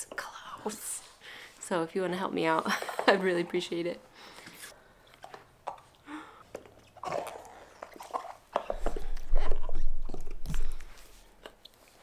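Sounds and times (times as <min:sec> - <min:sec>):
dog chewing rubber ball: 0:05.2 - 0:11.6.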